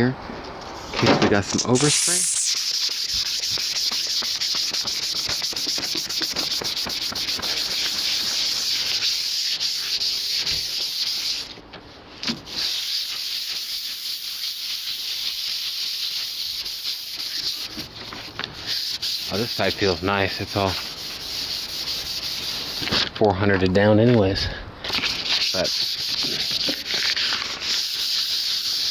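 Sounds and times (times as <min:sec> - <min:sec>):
sandpaper rubbing by hand: 0:01.4 - 0:11.6, 0:12.4 - 0:23.1, 0:24.9 - 0:28.9.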